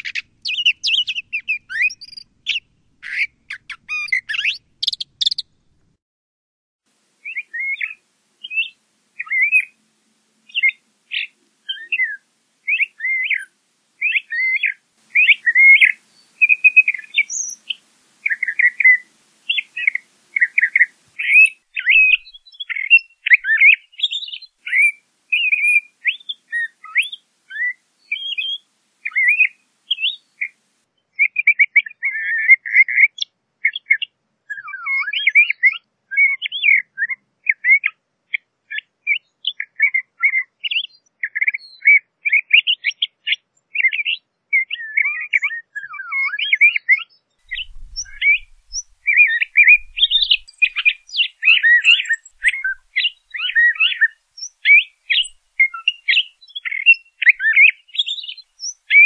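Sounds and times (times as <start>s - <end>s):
thrasher singing: 47.5s - 56.8s.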